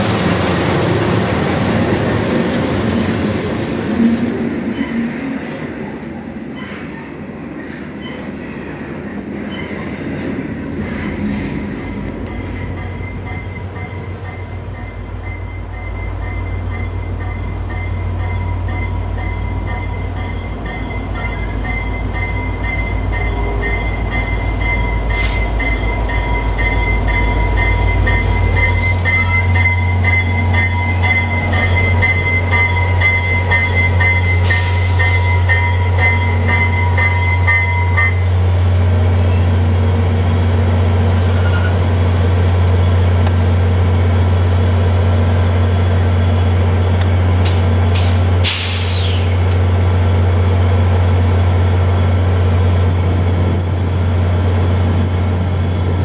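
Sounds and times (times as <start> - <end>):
diesel locomotive engine rumbling: 0.0 - 56.0
locomotive bell ringing: 12.2 - 39.6.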